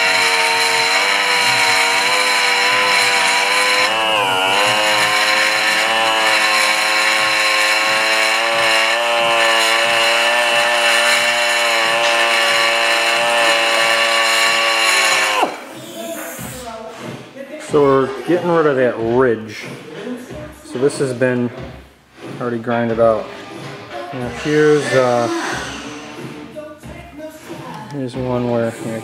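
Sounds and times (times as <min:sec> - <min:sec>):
die grinder high whine: 0:00.0 - 0:16.6, 0:24.1 - 0:26.6.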